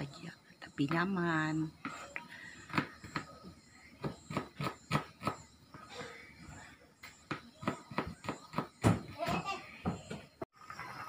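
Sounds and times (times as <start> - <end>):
knife chopping on plastic board: 7.3 - 9.1.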